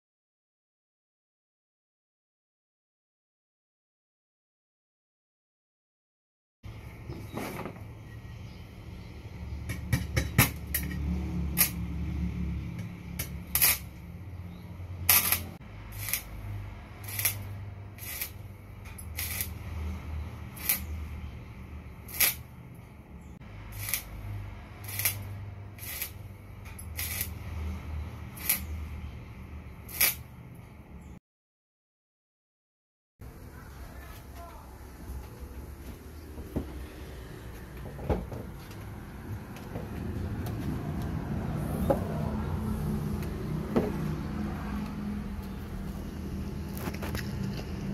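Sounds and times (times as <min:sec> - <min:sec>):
welding arc crackling and popping: 0:13.2 - 0:14.0, 0:15.1 - 0:16.4, 0:17.0 - 0:19.6, 0:20.5 - 0:20.9, 0:22.0 - 0:22.5, 0:23.7 - 0:24.2, 0:24.8 - 0:27.4, 0:28.3 - 0:28.8, 0:29.9 - 0:30.3.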